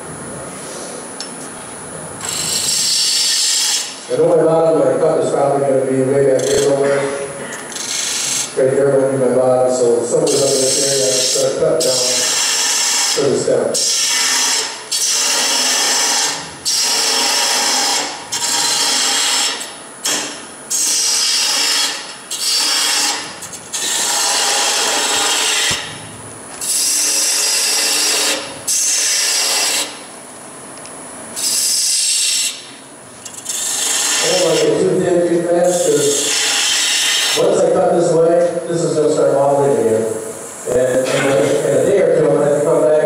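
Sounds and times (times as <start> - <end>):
woodturning tool cutting wood: 2.2 - 4.0, 7.7 - 8.7, 10.3 - 25.9, 26.6 - 30.0, 33.3 - 37.5.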